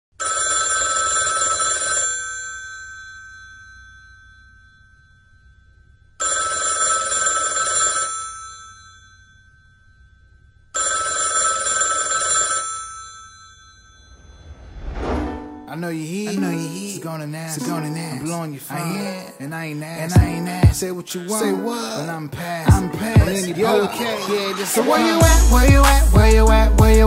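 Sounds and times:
telephone bell ringing: 0.2 - 14.5.

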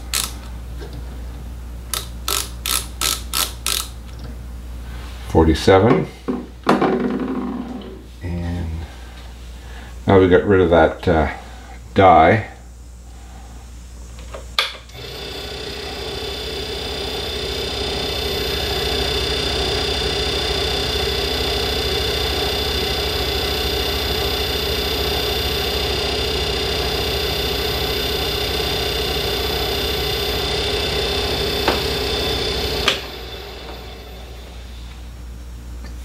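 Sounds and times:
lathe motor whining: 14.9 - 35.0.

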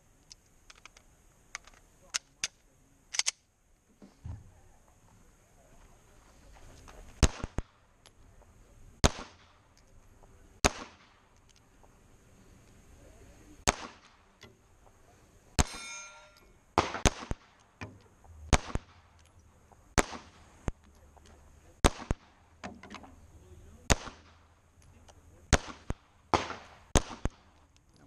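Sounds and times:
pistol shots: 7.2 - 7.8, 9.0 - 9.6, 10.6 - 11.4, 13.6 - 14.4, 15.6 - 15.8, 16.8 - 17.8, 18.5 - 19.2, 19.9 - 20.4, 21.8 - 22.4, 23.9 - 24.5, 25.5 - 27.6
metallic clang of steel plate: 15.6 - 16.6.

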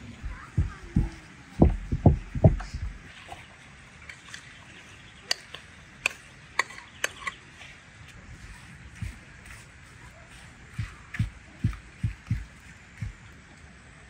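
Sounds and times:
kitchen utensils clicking and tapping: 5.3 - 7.4.

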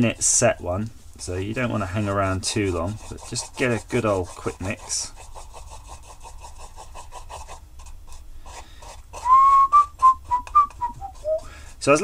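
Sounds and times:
stick scraping in plastic cup: 1.2 - 11.5
man whistling a tune: 9.2 - 11.5.

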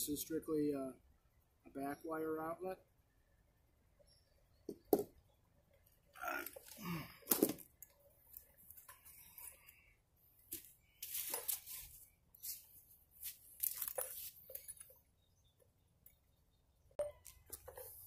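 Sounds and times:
rustling through long grass: 10.5 - 14.8.

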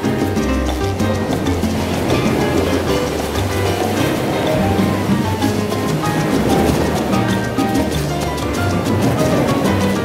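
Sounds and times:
sustained background music notes: 0.0 - 10.0.

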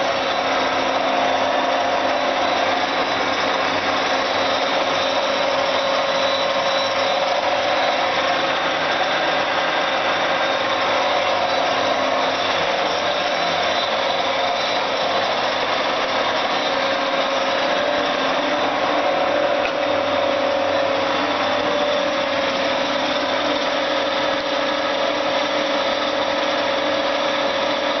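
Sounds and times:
milling machine hum and whine: 0.0 - 28.0.

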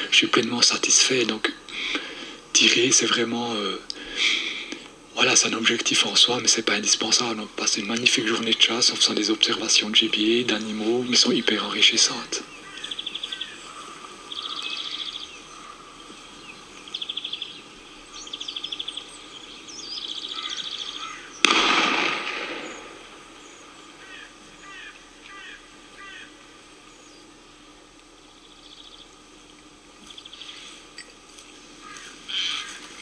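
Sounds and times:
rapidly pulsed bird trills: 4.2 - 21.6, 22.5 - 33.0
faint bird chirps: 12.3 - 21.4, 30.0 - 31.1
gunshot echoing: 21.4 - 23.3.

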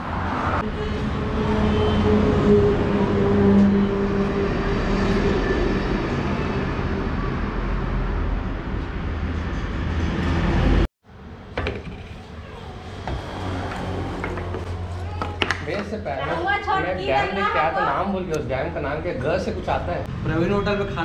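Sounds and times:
low road rumble: 0.0 - 16.6
vehicle engine humming: 12.5 - 17.2.

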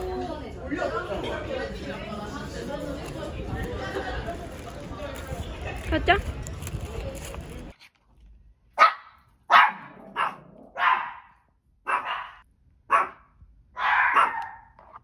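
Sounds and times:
small dog barking: 8.8 - 14.7.

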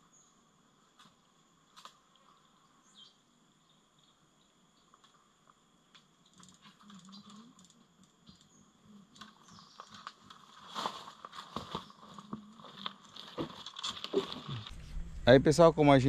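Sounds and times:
insects droning: 0.0 - 16.0
fishing gear clicking and rustling: 11.9 - 14.7.

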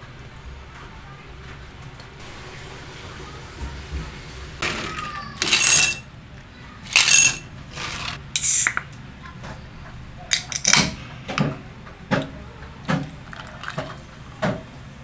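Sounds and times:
can and ice clinking on glass: 4.9 - 6.1, 6.9 - 8.8
drink pouring and foaming: 6.8 - 8.8, 12.2 - 14.6.

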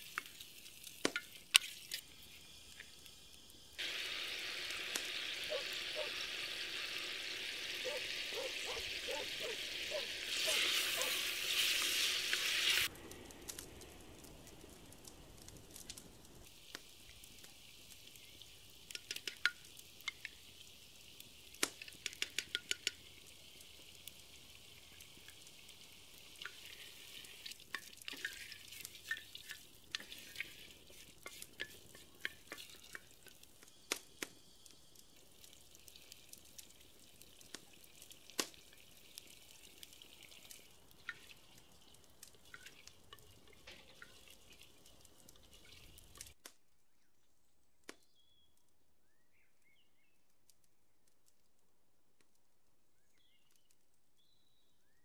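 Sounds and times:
food sizzling in hot oil: 0.0 - 46.4.

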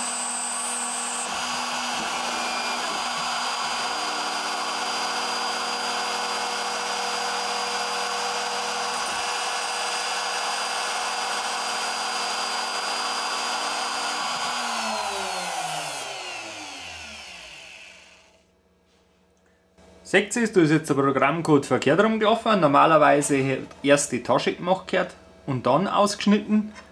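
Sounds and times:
milling machine spindle whine: 0.0 - 18.4.

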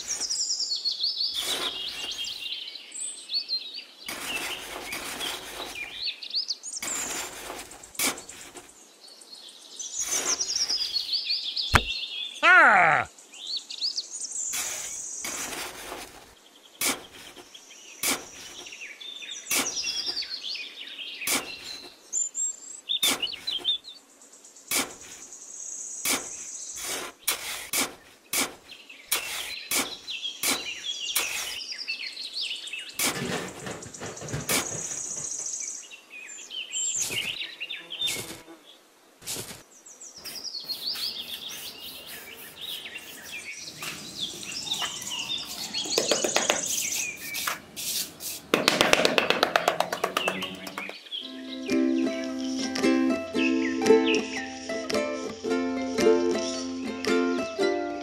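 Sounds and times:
birds chirping: 0.0 - 57.4
metal trowel scraping damp sand: 1.4 - 2.3, 4.1 - 6.0, 6.8 - 8.7, 14.5 - 16.2, 26.0 - 31.6, 39.2 - 39.6, 46.8 - 48.5.

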